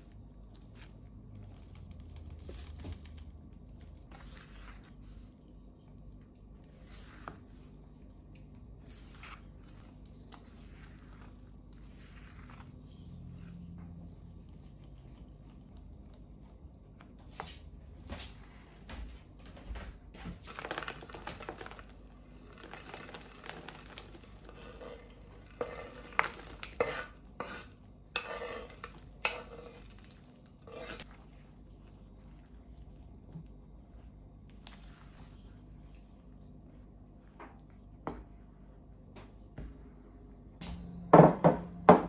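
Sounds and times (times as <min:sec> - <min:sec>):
spatula stirring batter in bowl: 0:00.0 - 0:18.4, 0:20.1 - 0:39.4
chocolate scraped off cutting board: 0:24.5 - 0:31.4.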